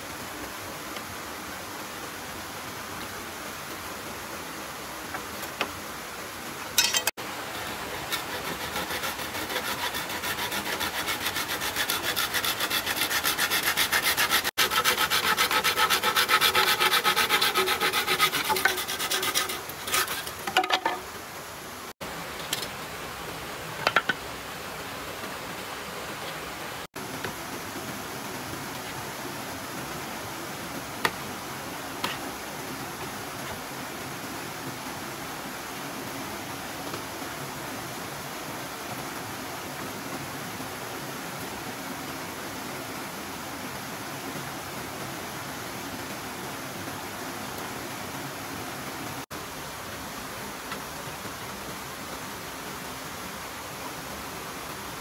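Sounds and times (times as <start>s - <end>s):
machete rasping across bamboo: 6.8s - 21.0s
sharp wood knocks: 23.8s - 24.2s.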